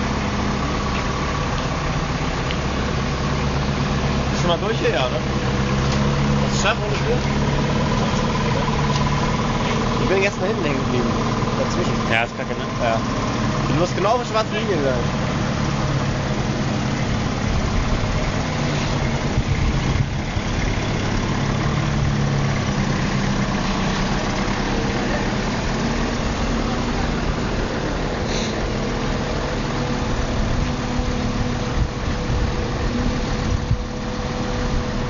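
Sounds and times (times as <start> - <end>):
forklift engine running at low revs: 0.0 - 35.0.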